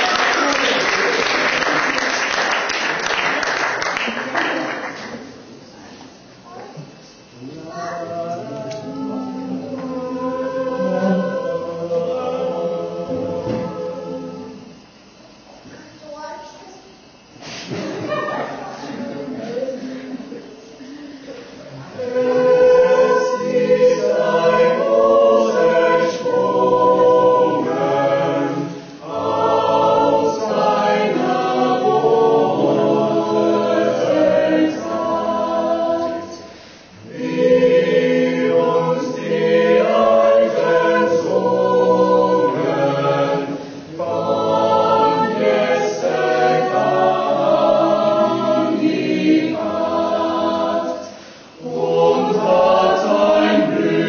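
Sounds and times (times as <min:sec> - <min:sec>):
choir singing: 0:00.0 - 0:03.2, 0:07.7 - 0:14.8, 0:21.7 - 0:54.0.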